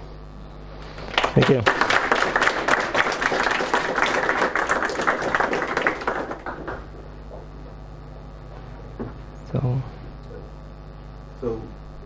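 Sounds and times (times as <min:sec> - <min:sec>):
audience applauding: 0:00.9 - 0:07.1.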